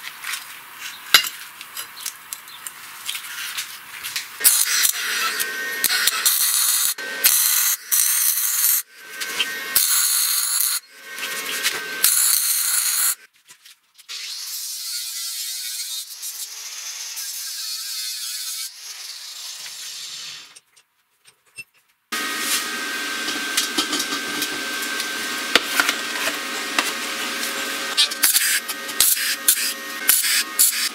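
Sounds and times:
welding arc crackling: 4.4s - 13.2s
angle grinder grinding steel: 4.4s - 13.3s, 22.1s - 30.9s.

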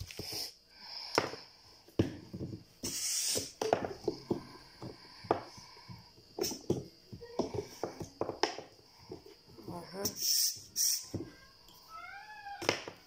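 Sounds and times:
air hiss: 2.8s - 3.6s, 10.0s - 11.2s.

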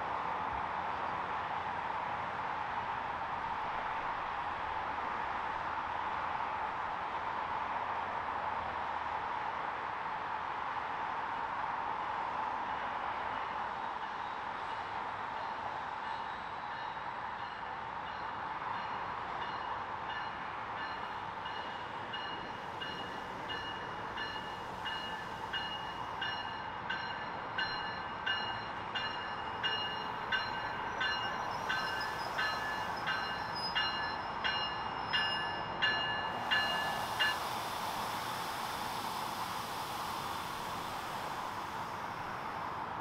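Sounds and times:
train rolling in: 0.0s - 43.0s
train bell ringing: 16.8s - 42.8s.

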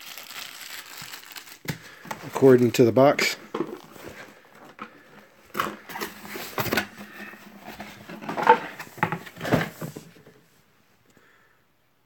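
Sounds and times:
cardboard packaging rustling and knocking: 3.4s - 10.5s.

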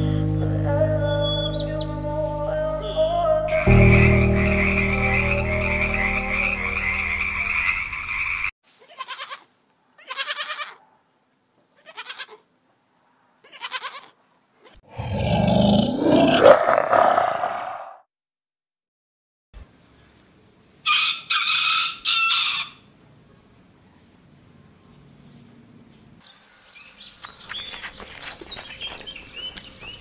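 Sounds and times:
short animal bleats: 8.8s - 10.8s, 11.8s - 12.4s, 13.4s - 14.8s.

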